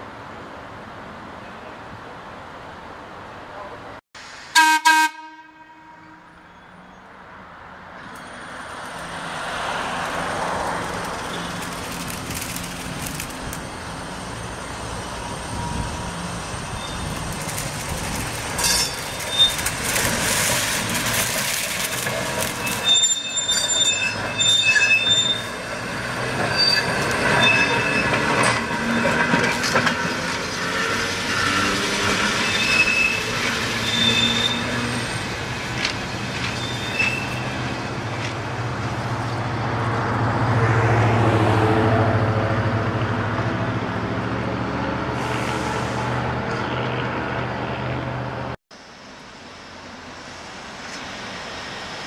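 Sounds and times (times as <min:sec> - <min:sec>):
steel wheels squealing: 0:09.6 - 0:37.8.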